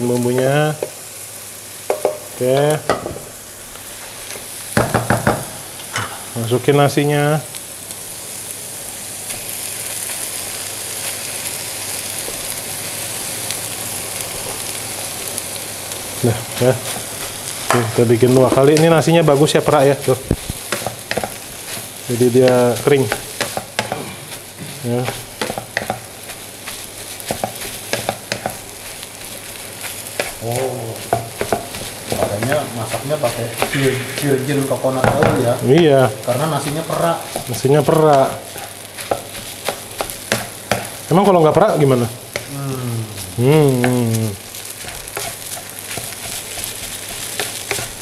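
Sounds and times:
oil sizzling in a wok: 0:00.0 - 0:48.0
wooden spatula clicking on pan: 0:01.9 - 0:02.7, 0:25.1 - 0:26.0, 0:27.3 - 0:28.6, 0:39.0 - 0:40.9.

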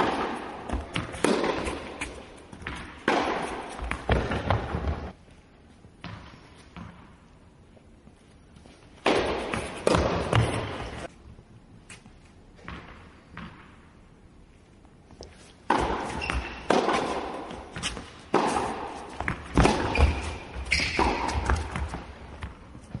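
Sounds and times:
sharp knocks in large hall: 0:00.0 - 0:05.2, 0:09.0 - 0:11.1, 0:15.6 - 0:23.0.

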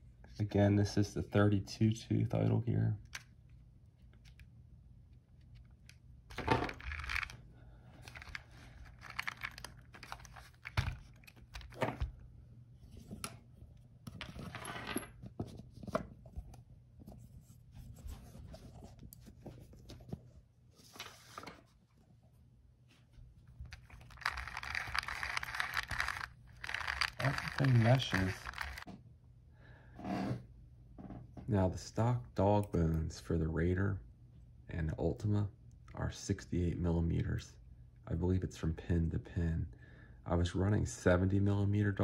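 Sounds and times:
small plastic gears clicking: 0:06.8 - 0:07.4, 0:23.7 - 0:28.8
scratchy handling noise: 0:23.6 - 0:28.9.

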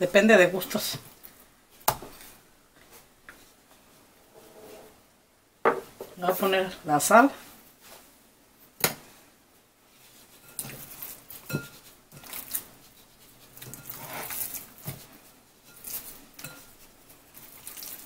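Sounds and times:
wet meat squishing: 0:12.1 - 0:14.8, 0:17.3 - 0:18.0.

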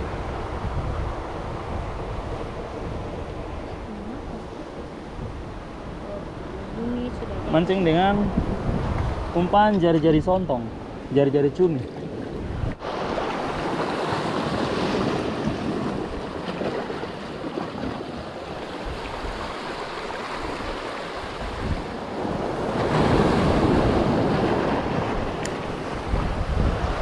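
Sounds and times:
wind buffeting microphone: 0:00.0 - 0:27.0
waves washing over rocks: 0:10.6 - 0:27.0.

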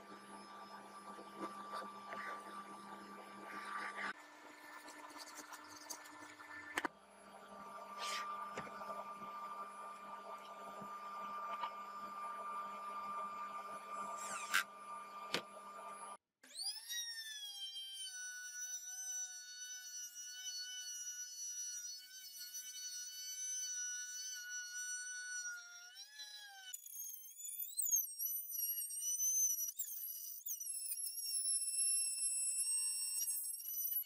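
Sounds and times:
electric router whining: 0:00.0 - 0:04.2.

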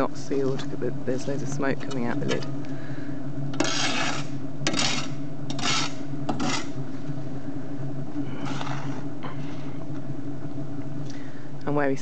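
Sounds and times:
low tuneful kiln drone: 0:00.0 - 0:12.0
shovel scraping: 0:03.6 - 0:06.8.

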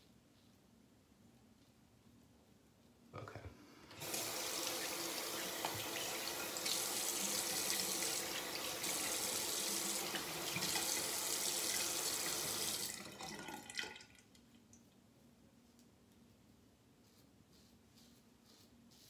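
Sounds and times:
tap running water into basin: 0:03.9 - 0:14.2.

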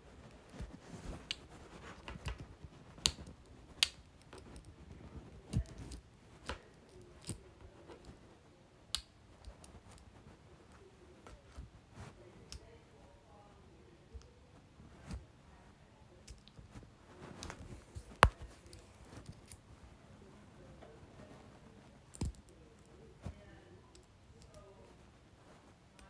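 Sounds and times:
faint room noise: 0:00.0 - 0:26.0
sharp clicks and light taps: 0:17.4 - 0:19.6.

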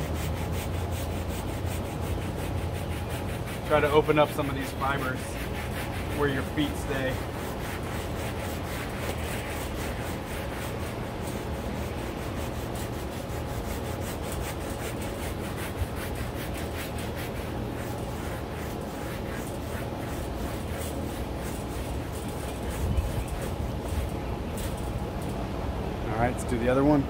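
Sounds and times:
brush scrubbing carpet mat: 0:00.0 - 0:24.9.

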